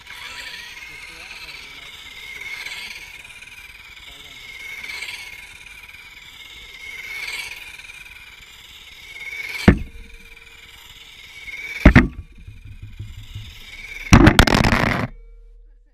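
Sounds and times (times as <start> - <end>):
toy car motor whining: 0.0 - 15.3
sharp loud knocks: 9.7 - 10.2, 11.9 - 15.1.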